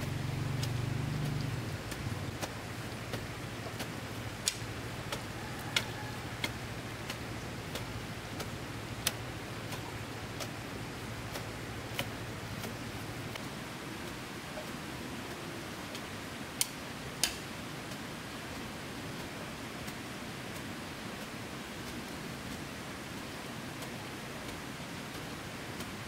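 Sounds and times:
low hum: 0.0 - 5.4
sharp regular ticking: 0.0 - 13.4
steady hiss: 0.0 - 26.0.

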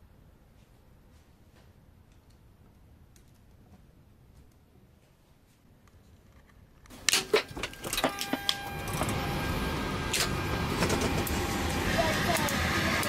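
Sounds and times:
electrical power hum with whine: 6.5 - 13.0.

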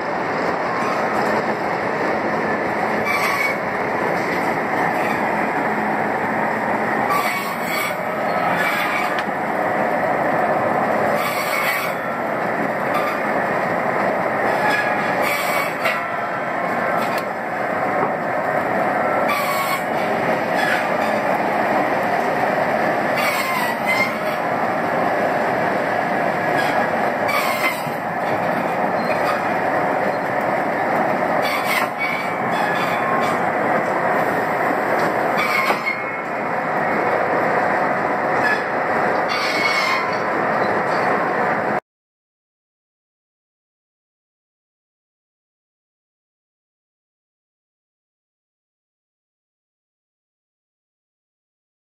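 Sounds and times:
sawmill machinery running: 0.0 - 41.8
high metal squeals: 3.0 - 3.6, 7.1 - 9.2, 11.2 - 12.0, 19.3 - 19.9, 23.2 - 24.4, 26.6 - 28.0, 31.4 - 33.4, 35.4 - 36.3, 38.4 - 41.1.

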